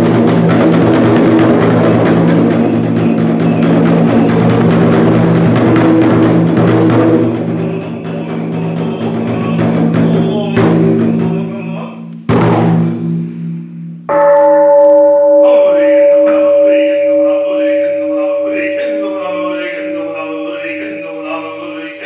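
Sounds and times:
taiko drum strikes: 0.0s - 19.9s
bowl bell ringing: 14.1s - 21.4s.

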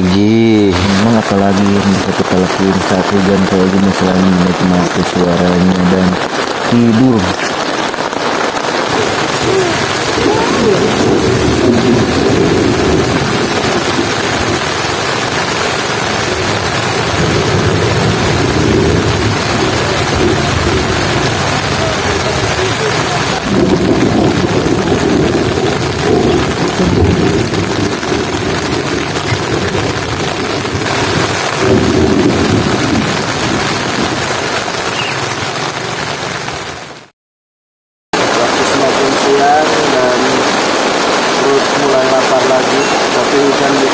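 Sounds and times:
heavy rain drumming on tent fabric: 0.0s - 37.1s, 38.1s - 43.9s
low rumble: 8.9s - 34.2s.

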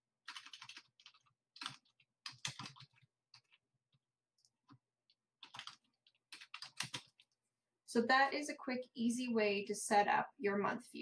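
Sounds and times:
typing on computer keyboard: 0.2s - 3.6s, 4.4s - 7.4s.

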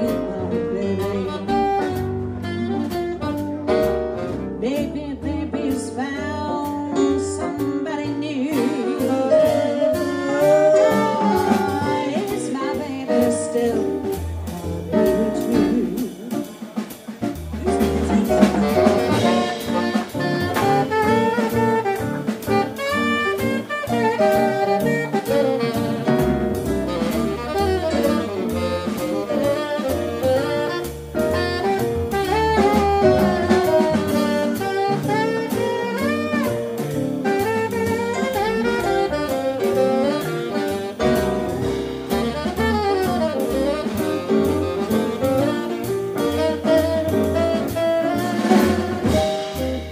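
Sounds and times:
saxophone solo: 0.0s - 4.8s, 7.9s - 49.9s
jazz band playing: 0.0s - 49.9s.

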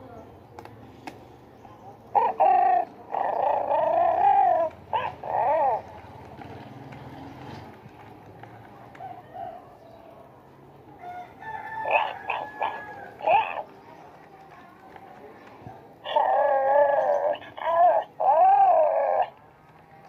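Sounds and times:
toy bear electronic cub calls: 2.1s - 5.9s, 11.9s - 13.7s, 16.0s - 19.4s.

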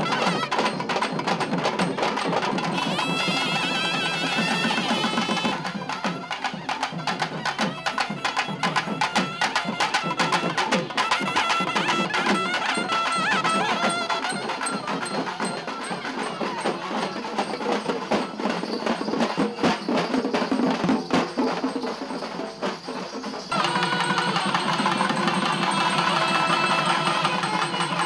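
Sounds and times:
wind instruments playing melody: 0.0s - 1.2s, 2.5s - 17.4s, 23.5s - 28.0s
stick-beaten drums: 0.0s - 28.0s.

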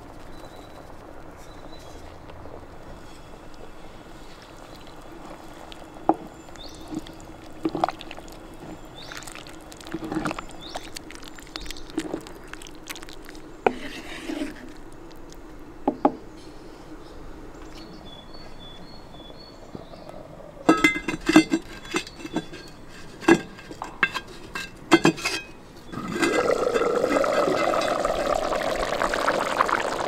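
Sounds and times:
steady low hum: 0.0s - 30.0s
liquid pouring into pot: 6.8s - 13.4s, 26.0s - 30.0s.

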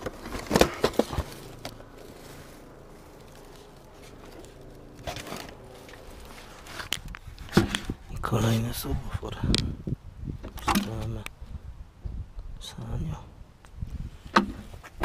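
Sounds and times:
cardboard scraping: 0.0s - 8.0s.

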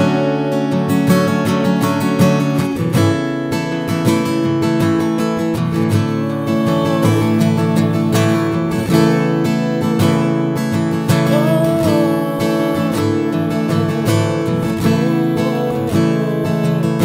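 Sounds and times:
acoustic guitar strumming chords: 0.0s - 17.0s
man singing: 5.9s - 8.9s, 11.1s - 17.0s.

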